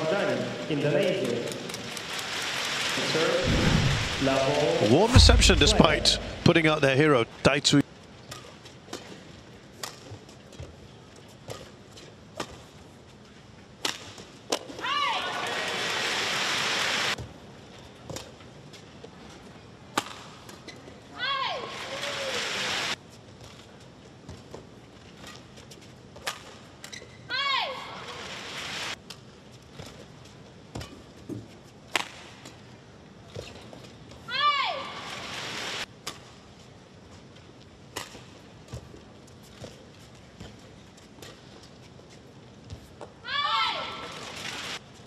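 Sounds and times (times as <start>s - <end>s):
low steady arena hum: 0.0s - 2.2s, 3.0s - 45.0s
crowd noise: 3.0s - 7.8s.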